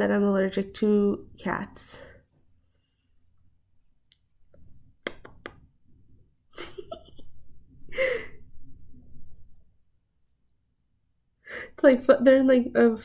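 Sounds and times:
woman laughing softly: 6.6s - 8.5s.

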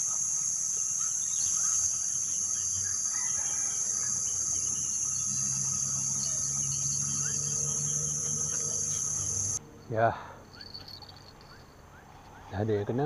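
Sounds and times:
high-pitched insect chorus: 0.0s - 9.6s.

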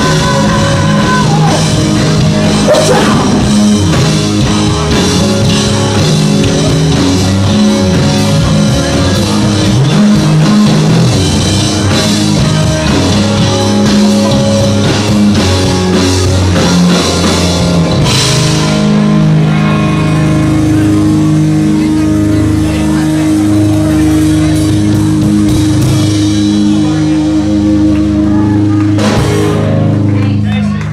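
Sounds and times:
live rock band playing: 0.0s - 30.9s.

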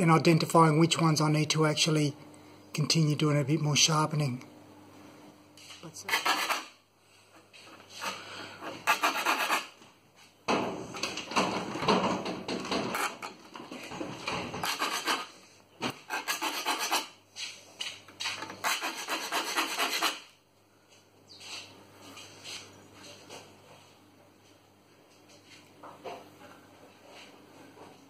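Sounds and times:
file rasping on saw teeth: 6.1s - 6.8s, 8.8s - 9.8s, 14.6s - 15.3s, 16.0s - 17.2s, 18.6s - 20.3s.

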